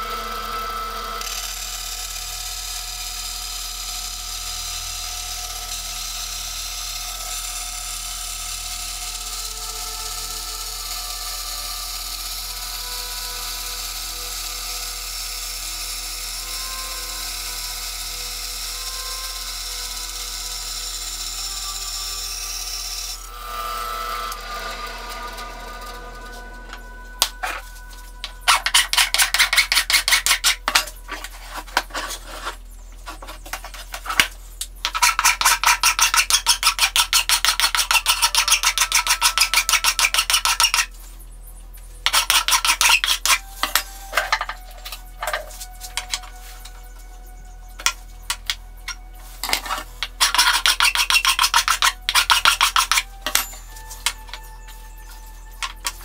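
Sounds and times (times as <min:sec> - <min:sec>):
bandsaw cutting metal: 0:00.0 - 0:41.0, 0:42.0 - 0:46.9, 0:47.7 - 0:56.0
hand filing metal: 0:27.2 - 0:40.9, 0:42.0 - 0:56.0.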